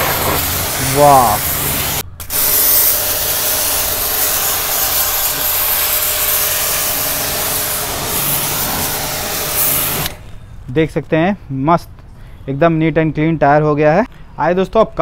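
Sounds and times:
pressure washer spraying water: 0:00.0 - 0:10.3.

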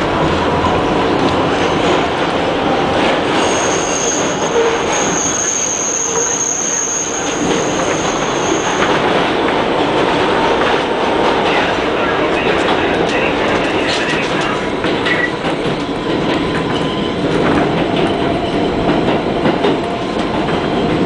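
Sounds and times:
subway train rumbling in tunnel: 0:00.0 - 0:21.0
high steady squeal: 0:03.4 - 0:09.0.

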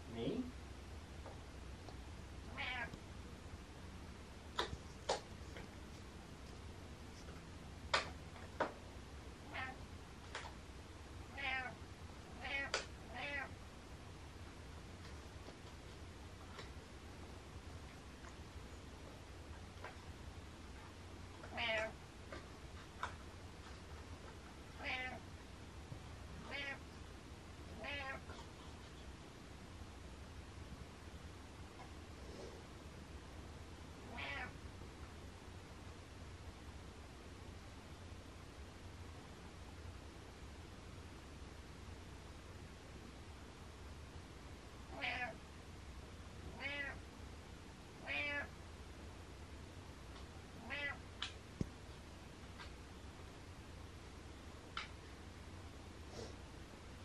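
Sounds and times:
cat meowing: 0:02.5 - 0:03.0, 0:09.5 - 0:09.8, 0:11.3 - 0:11.8, 0:12.4 - 0:13.5, 0:21.5 - 0:22.0, 0:24.8 - 0:25.2, 0:26.4 - 0:26.8, 0:27.8 - 0:28.2, 0:34.0 - 0:34.6, 0:44.9 - 0:45.4, 0:46.5 - 0:47.0, 0:48.0 - 0:48.5, 0:50.6 - 0:51.0.

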